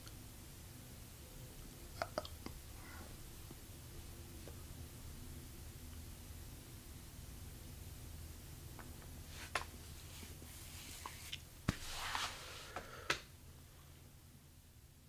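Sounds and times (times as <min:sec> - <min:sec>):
low steady hum: 0:00.0 - 0:15.0
clothing rustle: 0:09.3 - 0:12.8.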